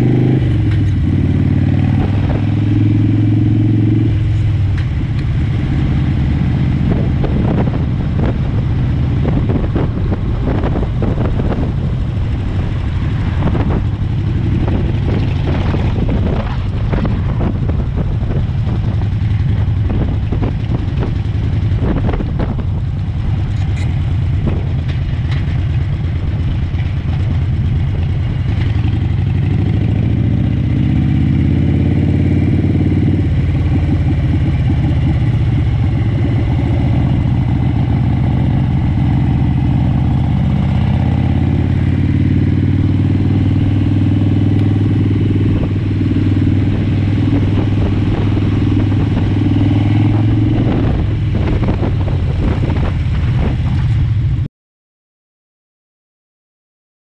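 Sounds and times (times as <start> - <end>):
motorcycle engine accelerating: 0.0 - 54.5.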